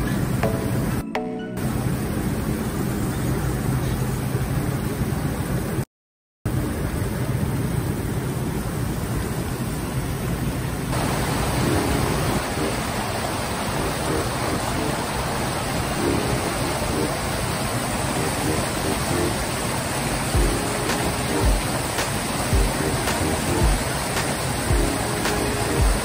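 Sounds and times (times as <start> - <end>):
stream rushing over rocks: 10.9 - 26.0.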